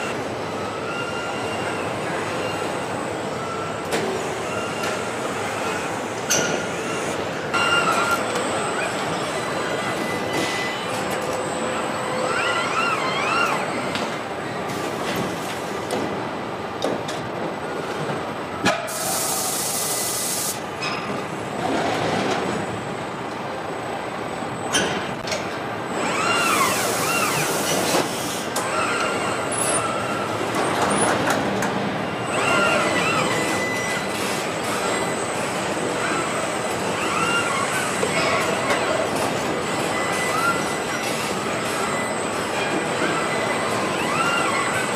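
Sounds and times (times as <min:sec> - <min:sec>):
pneumatic air hiss: 0:18.8 - 0:20.6, 0:26.5 - 0:28.6
servo motors whining: 0:25.9 - 0:27.6.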